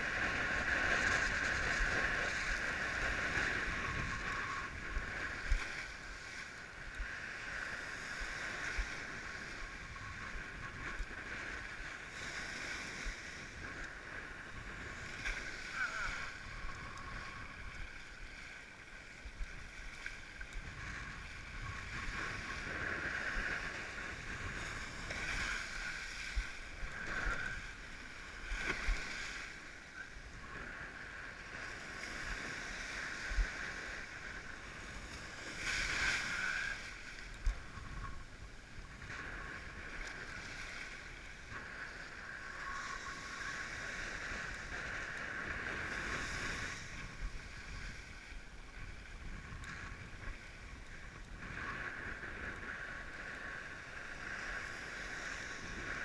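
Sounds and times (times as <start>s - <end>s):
water rushing along board: 0.0s - 56.0s
wind on microphone: 0.0s - 56.0s.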